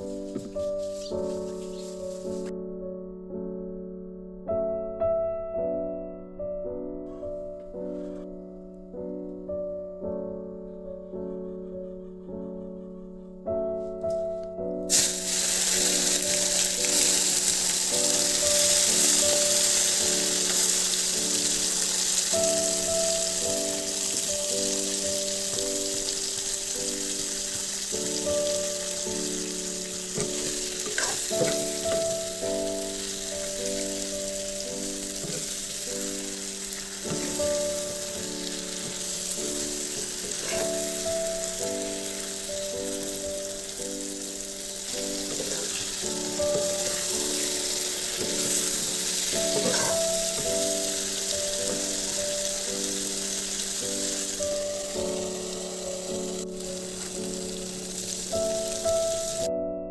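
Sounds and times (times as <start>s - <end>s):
food sizzling in a wok: 0.0s - 2.5s, 14.9s - 59.5s
soft background music: 0.0s - 59.9s
metal spoon scraping a pan: 40.2s - 40.8s, 49.5s - 50.1s.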